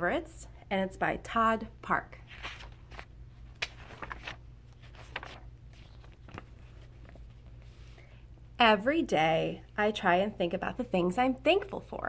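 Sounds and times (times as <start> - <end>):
faint low hum: 0.0 - 12.0
book pages rustling: 2.2 - 8.2.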